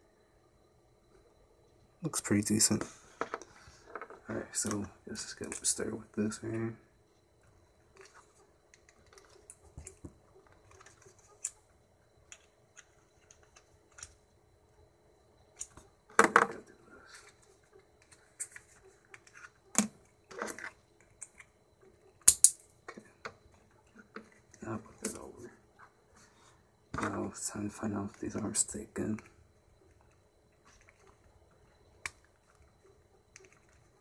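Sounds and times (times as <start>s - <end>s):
plastic parts clicking and knocking: 2.8s - 4.8s, 7.9s - 11.6s, 12.2s - 14.2s, 15.6s - 17.4s, 18.0s - 21.5s, 22.2s - 25.2s, 29.9s - 34.0s
plastic parts snapping: 22.2s - 22.6s.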